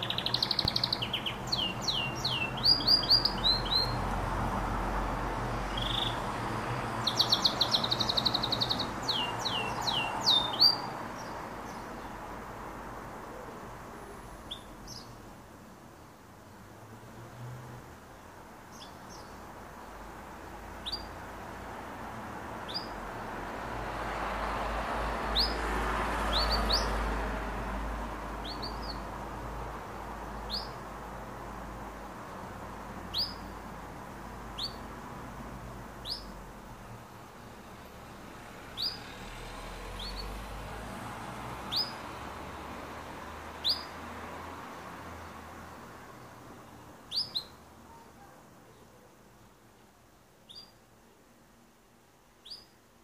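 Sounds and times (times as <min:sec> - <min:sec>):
canary chirping: 0:00.0 - 0:04.2, 0:05.6 - 0:06.3, 0:06.9 - 0:12.1, 0:14.4 - 0:15.2, 0:18.7 - 0:19.4, 0:20.7 - 0:21.2, 0:22.6 - 0:23.0, 0:25.2 - 0:25.6, 0:26.2 - 0:27.1, 0:28.4 - 0:29.2, 0:30.3 - 0:30.8, 0:33.1 - 0:33.6, 0:34.5 - 0:34.9, 0:35.9 - 0:36.4, 0:38.7 - 0:39.2, 0:39.8 - 0:40.5, 0:41.6 - 0:42.2, 0:43.0 - 0:44.0, 0:47.0 - 0:48.8, 0:50.4 - 0:50.8, 0:52.4 - 0:52.8.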